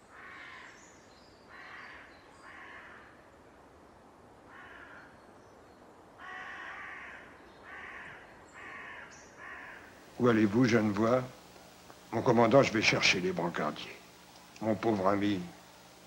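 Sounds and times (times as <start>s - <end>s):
crows cawing: 0.0s - 0.8s, 1.5s - 3.2s, 4.5s - 5.2s, 6.2s - 10.0s.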